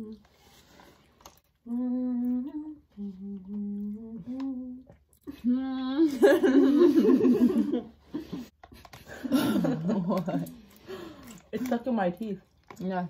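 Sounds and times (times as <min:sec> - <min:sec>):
girl humming: 0:01.7 - 0:06.2
laughter: 0:06.1 - 0:10.6.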